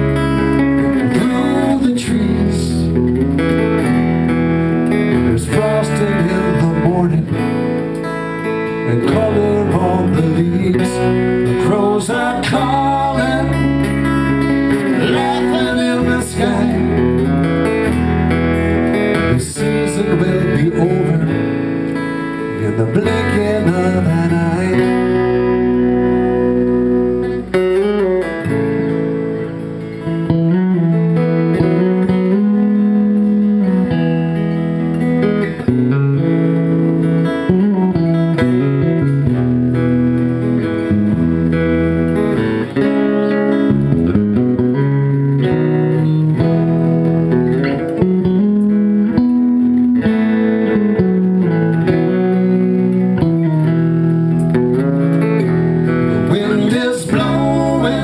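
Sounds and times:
electric bass line: 0:00.0 - 0:58.0
guitar picking melody: 0:00.0 - 0:58.0.

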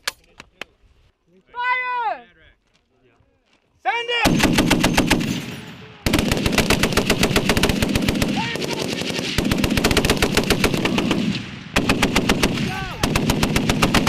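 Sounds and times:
heavy machine gun bursts: 0:04.2 - 0:14.0.

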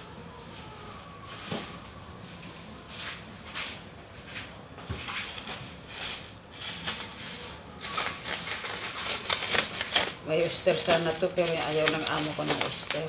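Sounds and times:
rustling and handling noises: 0:00.0 - 0:13.0.

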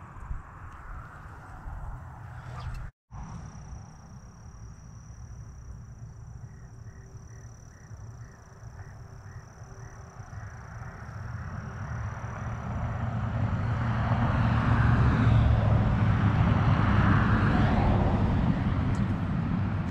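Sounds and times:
wind buffeting microphone: 0:00.0 - 0:02.9, 0:10.3 - 0:19.9.

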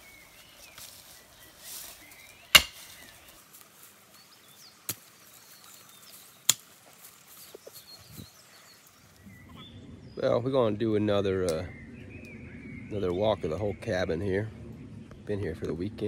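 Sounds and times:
faint birdsong: 0:00.0 - 0:16.0
pickaxe striking the ground: 0:02.5 - 0:03.0.

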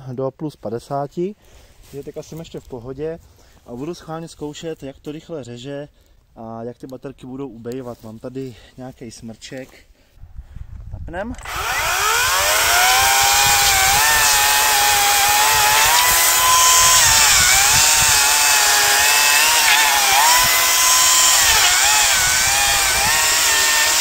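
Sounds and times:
electric chainsaw cutting log: 0:11.4 - 0:24.0.

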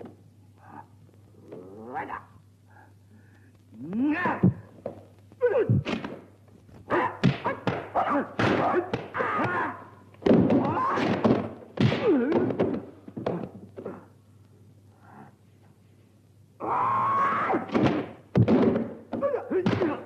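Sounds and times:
fighters yelling and grunting: 0:06.9 - 0:09.9
punch and kick impacts: 0:07.2 - 0:09.6, 0:10.2 - 0:13.4, 0:17.7 - 0:20.0.

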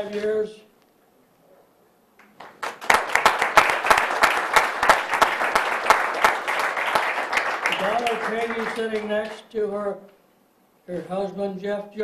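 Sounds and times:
audience applause: 0:02.4 - 0:09.4.

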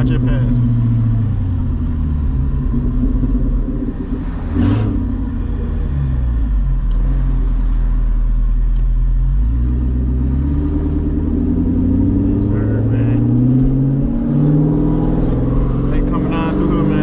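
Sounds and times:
car engine exhaust note: 0:00.0 - 0:17.0.

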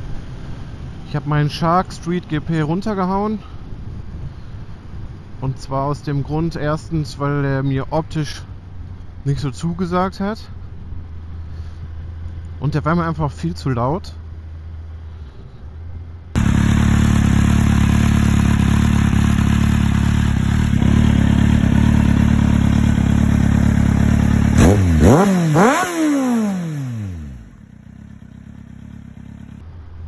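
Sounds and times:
motorcycle engine idling and revving: 0:07.2 - 0:30.0.

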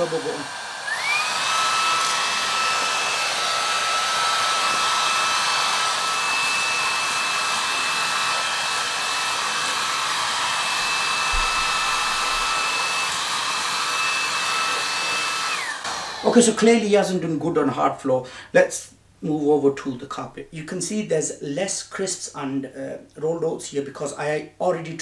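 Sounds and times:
vacuum motor whine: 0:00.4 - 0:16.2
rushing air: 0:10.8 - 0:12.8.

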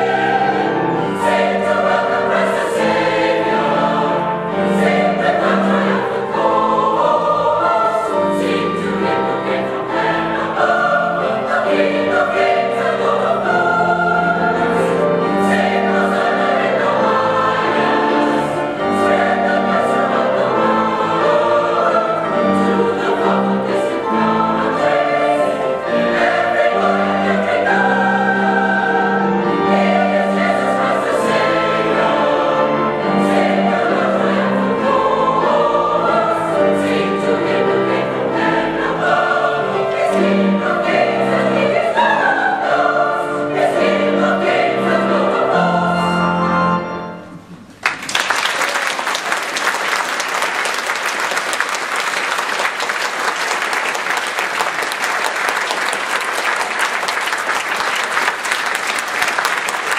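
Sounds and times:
choir singing a carol: 0:00.0 - 0:47.6
audience applauding: 0:47.7 - 0:59.9.

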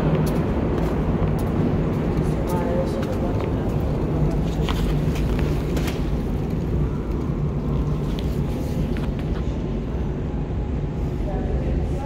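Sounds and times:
metro platform rumble and hum: 0:00.0 - 0:12.0.

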